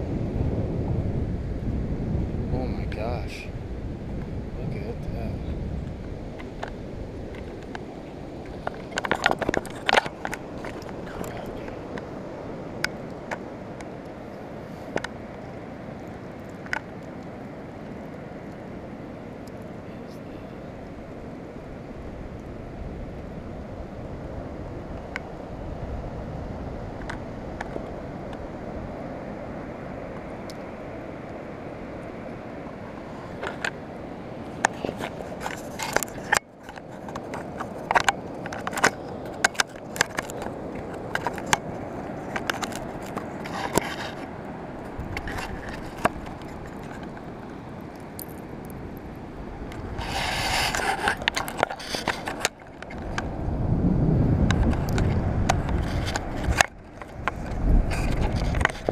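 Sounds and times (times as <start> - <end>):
surf: 0.0 - 58.9
wind: 0.0 - 58.9
clicks and scrapes on camera housing: 34.6 - 41.6, 42.2 - 44.3, 50.0 - 53.2.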